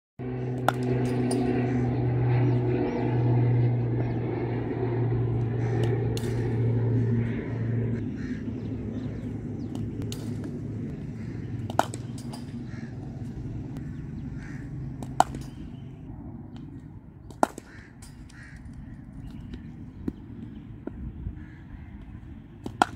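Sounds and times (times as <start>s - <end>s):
low engine hum: 0.2s - 22.9s
cricket bat hitting ball: 11.6s - 12.6s, 15.0s - 15.8s, 22.6s - 22.9s.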